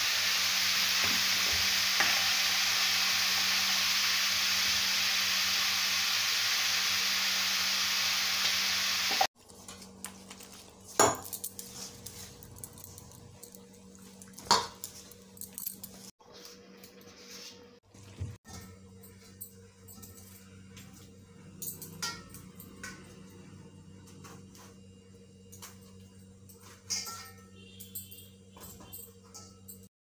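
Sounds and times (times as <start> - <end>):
vegetables sizzling in a wok: 0.0 - 9.3.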